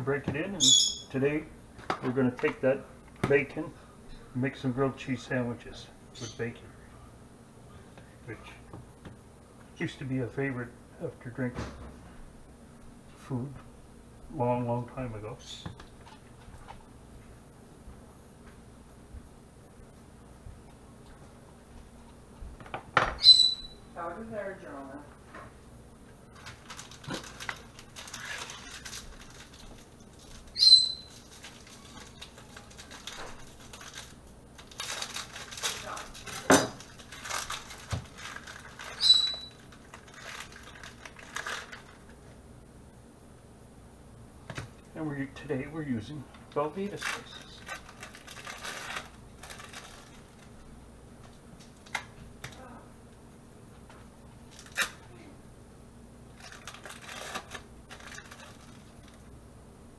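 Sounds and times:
plastic wrappers crinkling: 26.3s - 42.3s, 46.5s - 52.7s, 54.4s - 55.0s, 56.3s - 59.3s
hands clicking and rustling: 26.4s - 39.0s
short sharp high squeak: 39.0s - 39.5s.

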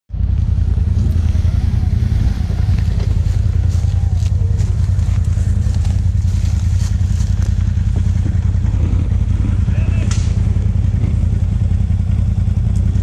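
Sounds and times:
atv engine idling: 0.1s - 13.0s.

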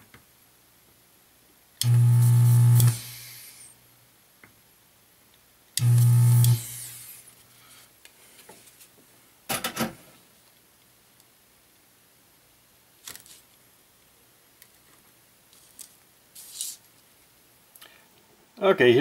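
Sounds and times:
desoldering pump buzzing: 1.8s - 3.4s, 5.8s - 7.0s.

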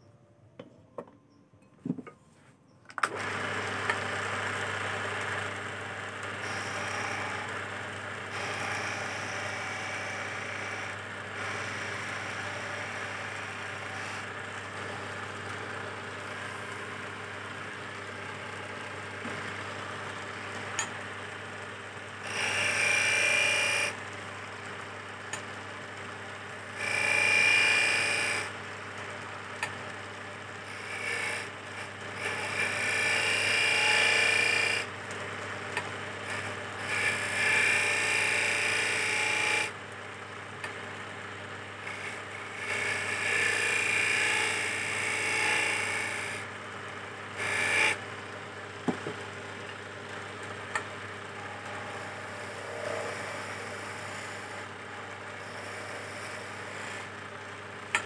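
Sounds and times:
small knocks: 0.6s - 2.2s, 48.8s - 49.2s
tool scraping spinning wood: 3.1s - 21.5s, 50.6s - 57.2s
lathe motor humming: 3.1s - 25.4s, 26.1s - 29.7s, 30.6s - 58.0s.

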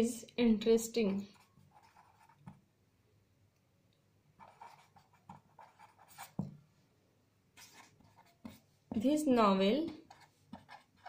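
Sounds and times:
pen scratching on paper: 1.0s - 2.6s, 4.4s - 6.6s, 7.6s - 9.1s, 9.9s - 11.0s.

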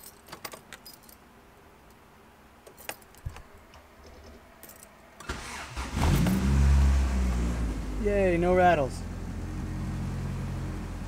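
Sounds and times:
keys jangling: 0.0s - 1.2s, 2.6s - 5.0s.

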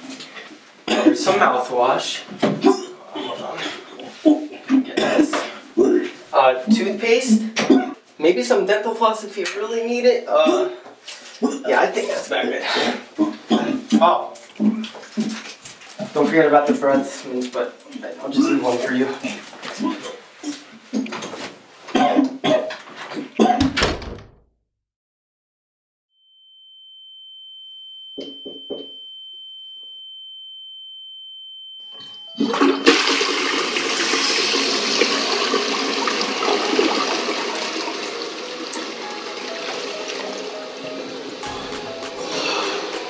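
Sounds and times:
steady high-pitched tone: 26.5s - 33.2s
toilet flushing: 32.4s - 43.0s.

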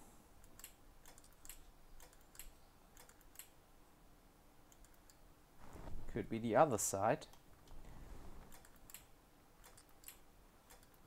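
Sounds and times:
small plastic clicks and ticks: 0.4s - 3.6s, 4.7s - 5.2s, 7.2s - 11.0s.

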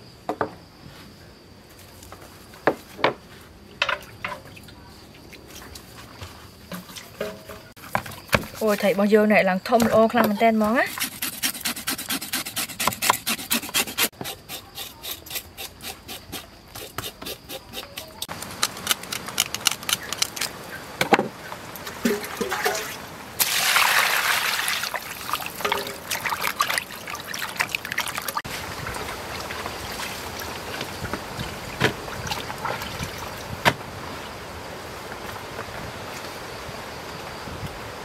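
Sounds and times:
water splashing in a basin: 21.7s - 33.6s
sharp drips or knocks: 21.8s - 23.0s, 25.3s - 29.1s
rain hissing: 28.4s - 38.0s.

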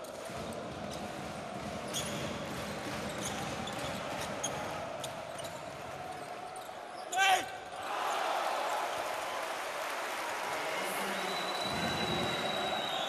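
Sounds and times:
arena crowd noise: 0.0s - 13.0s
basketball dribbling on hardwood: 0.3s - 4.5s
sneakers squeaking: 1.9s - 2.5s, 3.1s - 7.2s.

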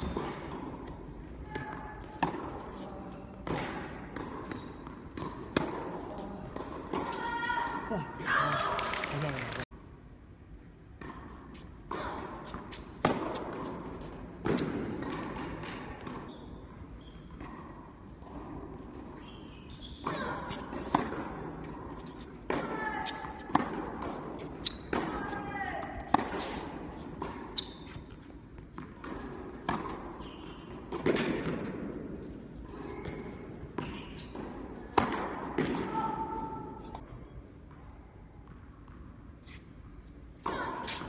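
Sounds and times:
tennis ball bouncing: 0.0s - 7.7s, 11.0s - 16.3s, 20.0s - 37.0s
tennis ball struck by racket: 20.0s - 25.2s, 26.0s - 27.5s, 28.7s - 30.1s, 30.7s - 32.1s, 34.9s - 36.1s.

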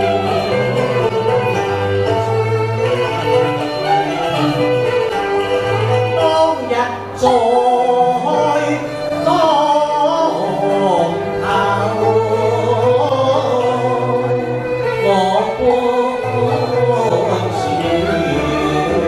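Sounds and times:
instrumental accompaniment with bass: 0.0s - 19.0s
man singing into a microphone: 6.1s - 19.0s.

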